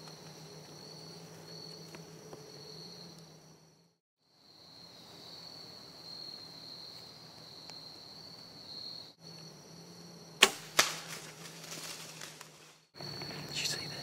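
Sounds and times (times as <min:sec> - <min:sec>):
high-pitched insect chorus: 0:00.0 - 0:14.0
bow shot snap: 0:10.4 - 0:11.3.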